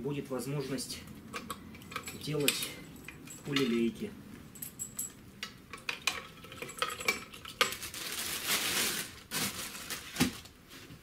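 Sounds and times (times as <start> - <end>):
plastic wrapping crinkling: 6.8 - 11.0.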